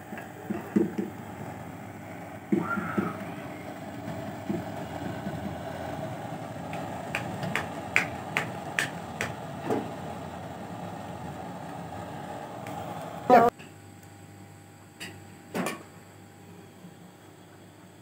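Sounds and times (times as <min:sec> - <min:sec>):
kitchen hum: 0:00.0 - 0:13.8.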